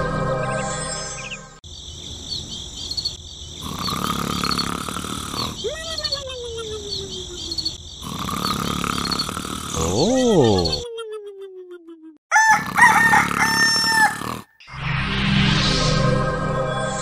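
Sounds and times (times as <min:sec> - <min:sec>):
crickets chirping: 0:01.2 - 0:10.8
cartoon snoring with whistle: 0:03.6 - 0:05.8, 0:08.0 - 0:10.8, 0:12.6 - 0:14.7.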